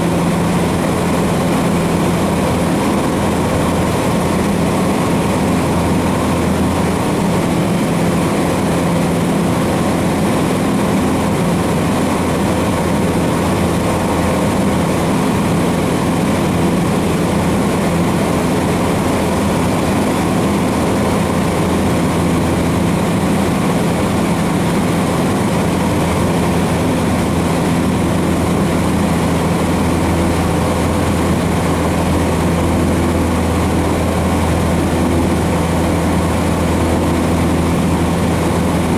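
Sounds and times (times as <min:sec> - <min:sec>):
airplane engine droning: 0:00.0 - 0:38.9.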